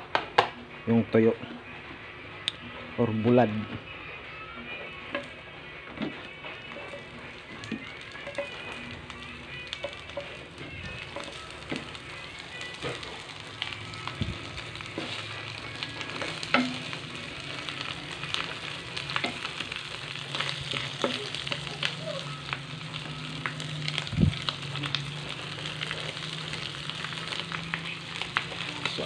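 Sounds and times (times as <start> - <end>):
fish sizzling in oil: 6.5 - 29.0.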